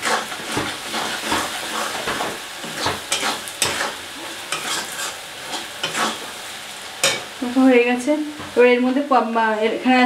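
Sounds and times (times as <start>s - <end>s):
metal spatula scraping a pan: 0.0s - 6.4s
onions sizzling in oil: 0.0s - 10.0s.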